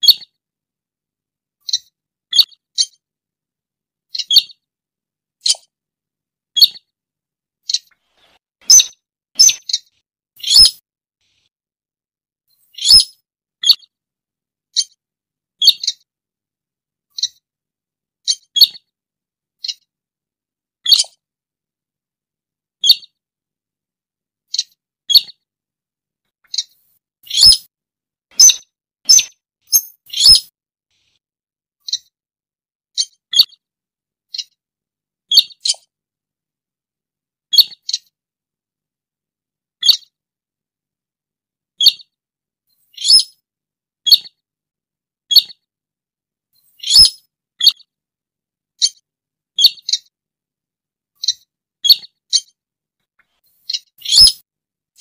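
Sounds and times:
bird high calls: 0:08.6 - 0:10.8, 0:12.8 - 0:13.8, 0:26.5 - 0:27.7, 0:28.4 - 0:30.5, 0:43.0 - 0:43.3, 0:46.8 - 0:47.8, 0:53.7 - 0:54.4.

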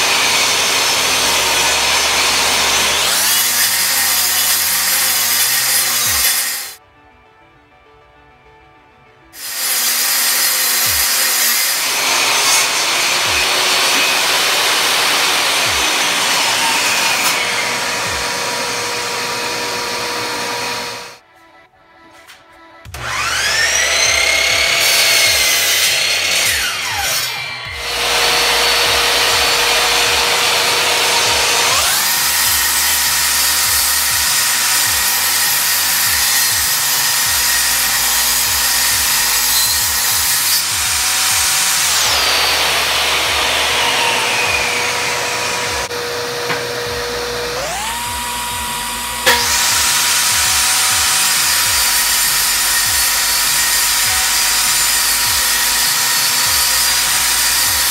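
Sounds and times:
table saw high whine: 0:00.0 - 0:06.8, 0:09.4 - 0:21.2, 0:22.9 - 0:57.9
miter saw winding down: 0:23.0 - 0:25.2, 0:41.7 - 0:52.9.

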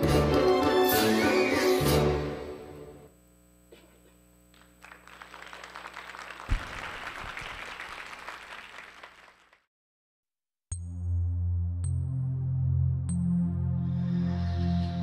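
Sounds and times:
audience applauding: 0:04.6 - 0:09.7.

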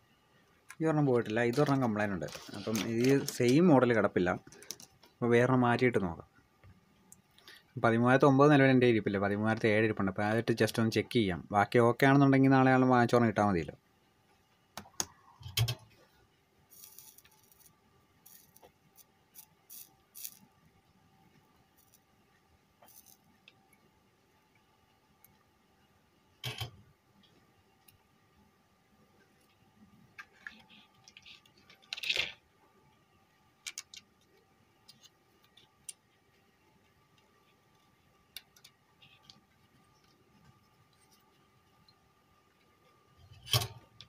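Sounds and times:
dry scratching and scraping: 0:01.4 - 0:03.6, 0:16.7 - 0:20.5.

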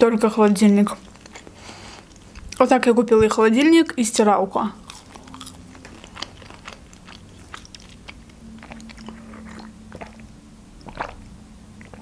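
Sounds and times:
faint steady hum: 0:00.0 - 0:12.0
chewing with wet mouth clicks: 0:00.9 - 0:02.7, 0:04.8 - 0:12.0
sip of water: 0:08.6 - 0:12.0.

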